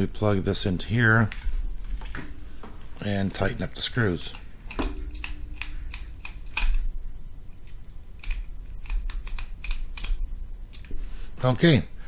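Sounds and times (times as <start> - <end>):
screwdriver clicks and ticks: 8.2 - 10.9.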